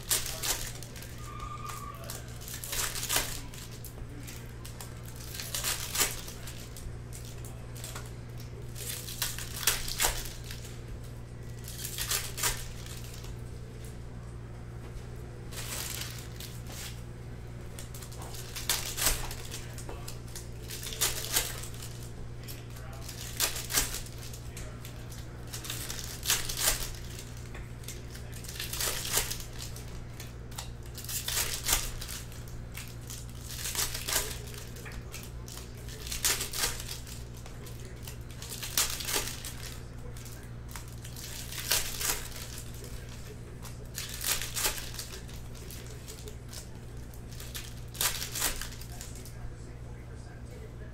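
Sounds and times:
card pack wrappers tearing: 0.0 - 13.9, 15.5 - 17.0, 17.7 - 49.4
steady low hum: 0.0 - 50.9.

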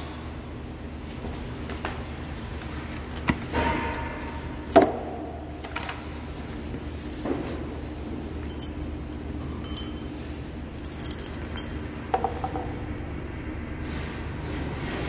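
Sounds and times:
low hum: 8.2 - 13.9
light metal clinks: 8.4 - 10.2, 10.8 - 12.0.

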